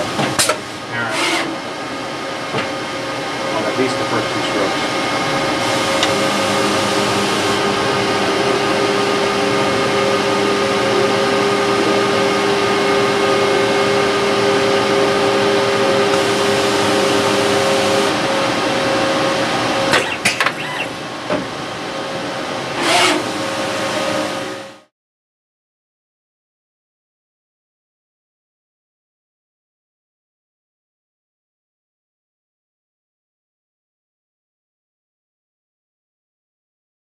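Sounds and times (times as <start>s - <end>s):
machine humming: 0.0s - 24.9s.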